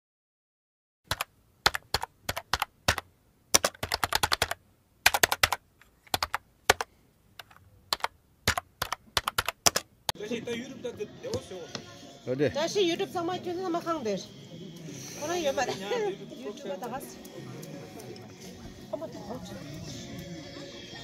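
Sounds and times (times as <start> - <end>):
sharp clicks and taps: 1.1 - 9.9.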